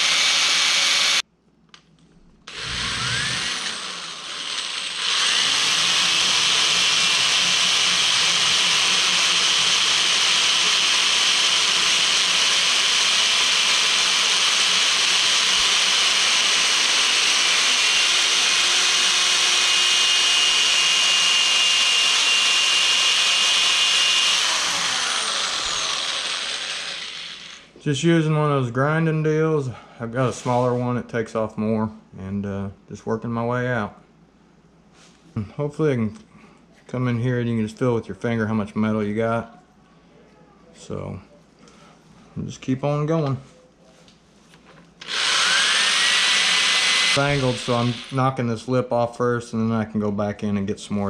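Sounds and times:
drill grinding metal: 0.0s - 1.2s, 2.5s - 27.7s, 45.0s - 48.4s.

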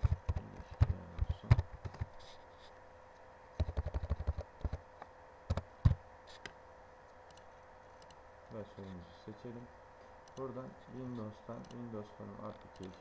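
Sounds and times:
computer keyboard typing: 3.6s - 4.8s.

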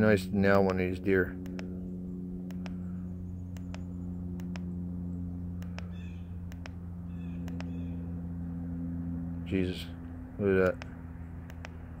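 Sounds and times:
steady low hum: 0.0s - 12.0s
button clicks: 4.4s - 4.7s, 6.5s - 6.8s, 7.4s - 7.7s.

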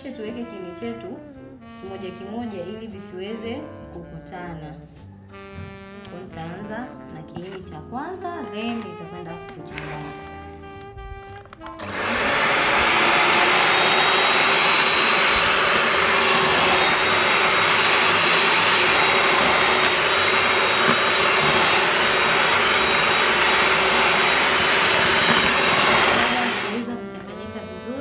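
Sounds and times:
electric hand mixer running: 9.7s - 10.5s, 11.7s - 26.9s
beaters churning thick batter: 11.8s - 26.9s.

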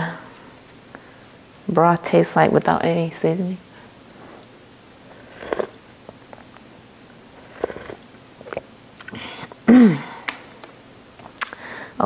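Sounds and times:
slurping broth from spoon: 4.3s - 5.8s, 7.3s - 9.2s
soft mouth sounds: 5.1s - 5.8s, 7.3s - 10.4s.

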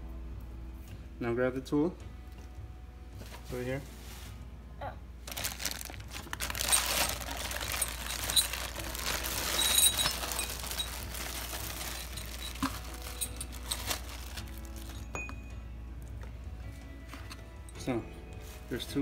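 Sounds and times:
plastic bag crinkling: 5.3s - 15.1s.

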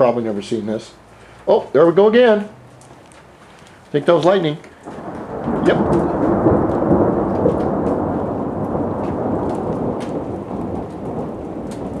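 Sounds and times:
steady rain: 0.0s - 12.0s
raindrops ticking: 1.2s - 12.0s
thunder rumbling: 4.3s - 12.0s.

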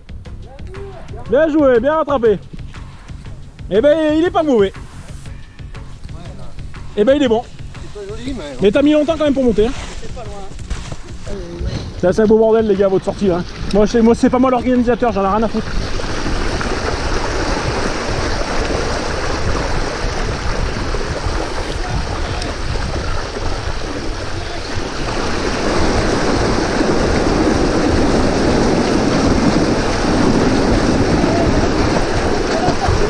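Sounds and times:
wind noise on microphone: 0.0s - 33.0s
bike tyres splashing through water: 12.0s - 33.0s.

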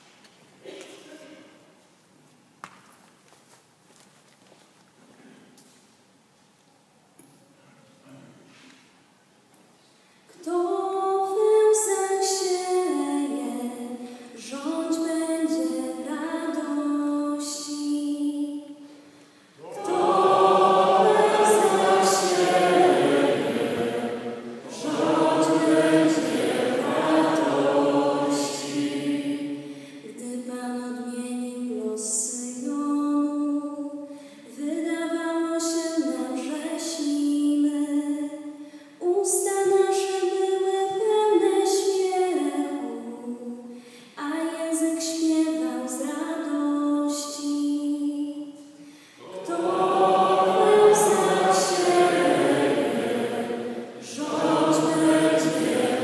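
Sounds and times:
congregation singing: 19.6s - 30.1s, 49.2s - 56.0s.

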